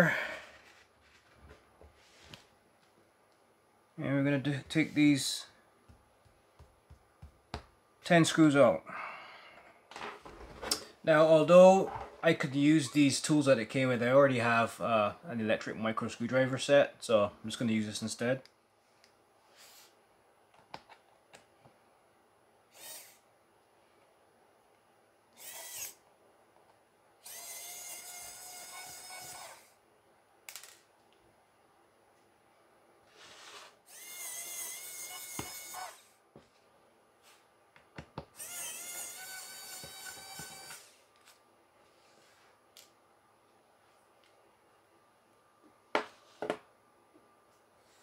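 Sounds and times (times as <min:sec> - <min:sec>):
electric screwdriver whirring: 0:25.4 - 0:26.0, 0:27.2 - 0:29.7, 0:33.9 - 0:36.1, 0:38.4 - 0:41.0.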